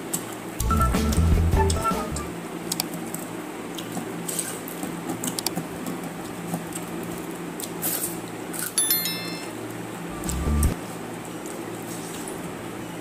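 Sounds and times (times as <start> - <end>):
bright electronic chime: 8.8 - 10.8
steady low hum: 10.0 - 10.9.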